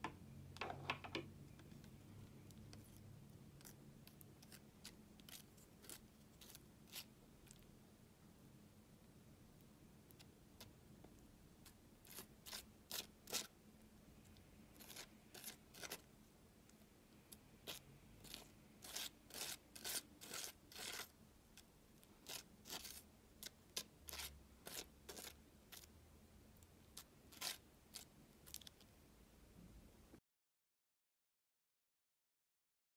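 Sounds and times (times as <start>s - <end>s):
palette knife scraping thick paint: 2.5s - 7.7s, 11.6s - 13.6s, 14.7s - 16.1s, 17.6s - 21.2s, 22.2s - 25.9s, 26.9s - 28.8s.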